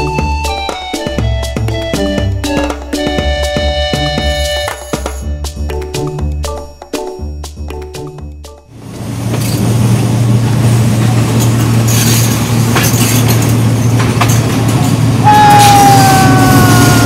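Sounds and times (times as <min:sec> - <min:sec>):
diesel locomotive engine drone: 0:08.7 - 0:17.0
wheels clacking on track: 0:08.8 - 0:16.0
train horn falling in pitch: 0:15.3 - 0:17.0.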